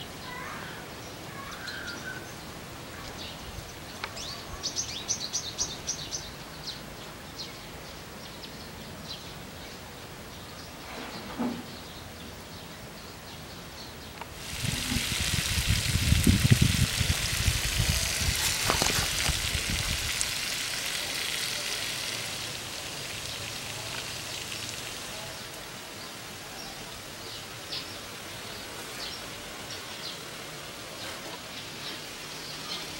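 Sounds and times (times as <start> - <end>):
sprinkler spraying water: 14.2 - 32.9.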